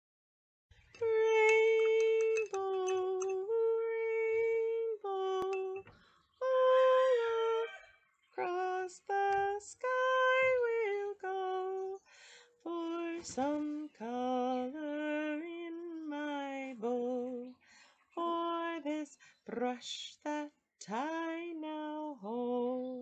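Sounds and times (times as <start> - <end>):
woman singing unaccompanied: 0.9 - 23.0.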